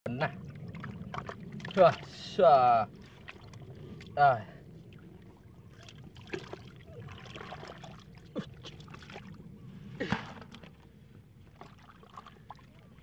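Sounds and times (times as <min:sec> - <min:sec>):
hands sloshing in muddy water: 0:00.3 - 0:02.3, 0:02.9 - 0:13.0.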